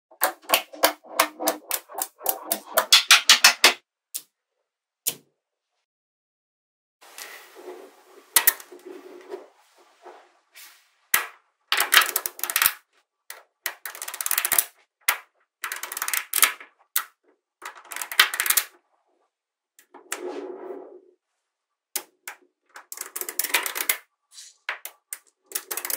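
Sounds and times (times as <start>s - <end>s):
magnetic balls clicking together: 0.2s - 4.3s, 11.2s - 18.8s, 22.0s - 24.1s, 24.7s - 25.9s.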